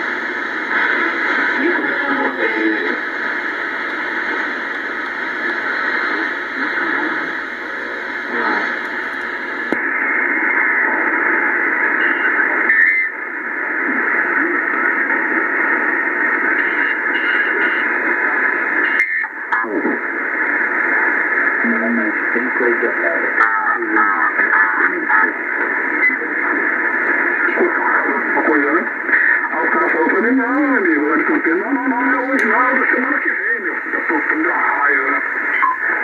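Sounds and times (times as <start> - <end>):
radio hiss and static: 0.0 - 36.0
radio tuning whistles: 9.8 - 19.4.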